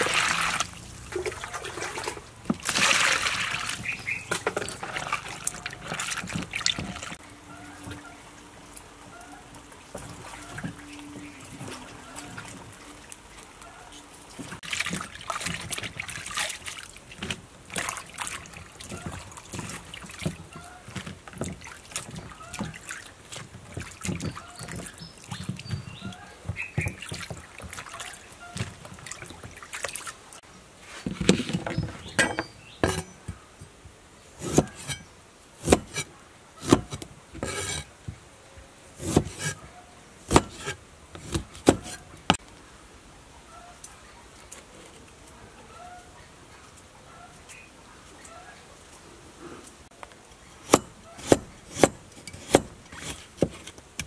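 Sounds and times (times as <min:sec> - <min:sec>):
water trickling and splashing: 0:00.0 - 0:33.5
handling noises: 0:30.8 - 0:33.8, 0:34.4 - 0:38.2, 0:39.0 - 0:42.5
knife cutting on wooden board: 0:34.4 - 0:35.0, 0:35.6 - 0:37.9, 0:39.0 - 0:39.6, 0:40.3 - 0:42.4, 0:50.6 - 0:53.8.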